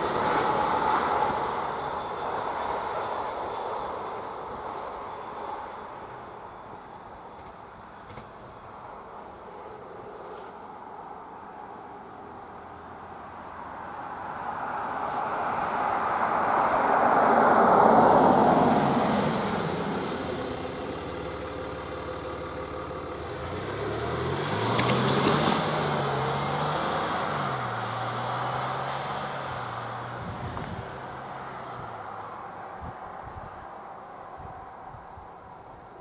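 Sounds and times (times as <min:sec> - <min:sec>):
tyre and road noise: 0:00.0 - 0:36.0
car engine accelerating: 0:16.0 - 0:32.6.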